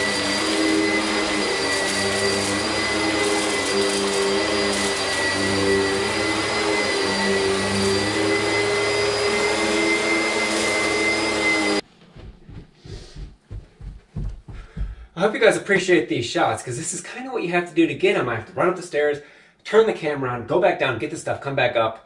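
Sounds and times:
upright vacuum running: 0:00.0 - 0:15.0.

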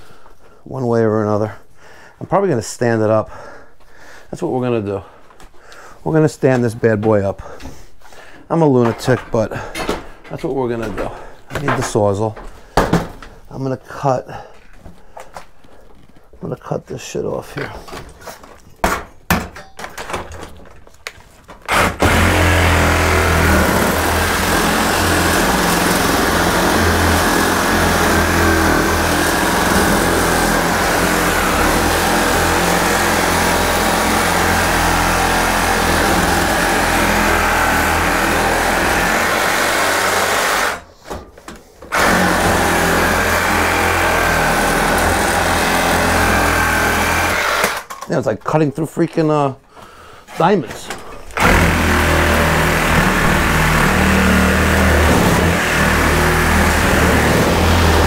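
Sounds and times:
reciprocating saw cutting steel: 0:21.7 - 0:40.8, 0:51.4 - 0:58.0.

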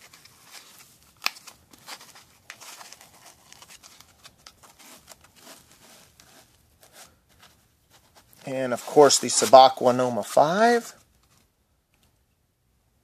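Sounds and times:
watch scraping in foam case: 0:02.0 - 0:10.0.

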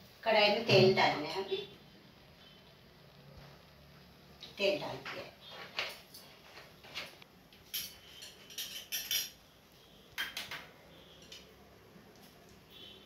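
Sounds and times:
metal bowls clinking on a plate: 0:07.7 - 0:09.4.

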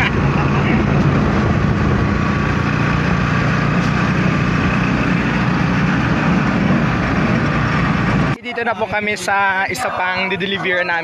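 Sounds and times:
vehicle engine running: 0:00.0 - 0:09.4
road and wind noise: 0:00.0 - 0:11.0.

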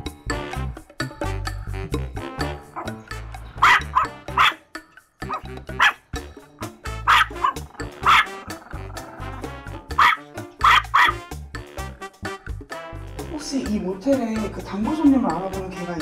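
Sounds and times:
background music: 0:00.0 - 0:16.0
small dog barking: 0:02.8 - 0:03.0, 0:03.6 - 0:04.6, 0:05.2 - 0:06.0, 0:07.0 - 0:08.4, 0:09.9 - 0:11.2.

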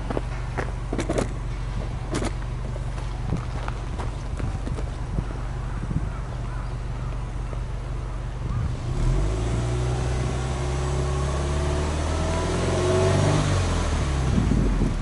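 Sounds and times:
car engine revving: 0:08.4 - 0:15.0.

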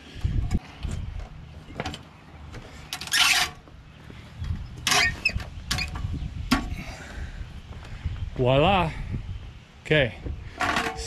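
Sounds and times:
aluminium steps clanking: 0:00.5 - 0:06.9.

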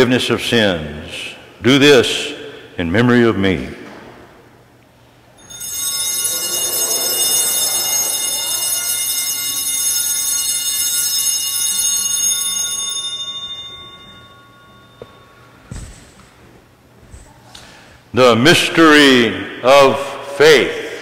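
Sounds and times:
altar bells ringing: 0:05.4 - 0:16.8.

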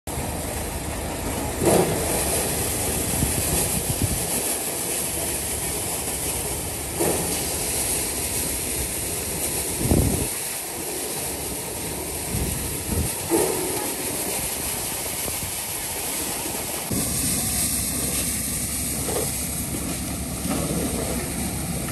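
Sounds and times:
maize sheller running: 0:00.1 - 0:21.9
corn cobs tipped into hopper: 0:01.2 - 0:08.1.

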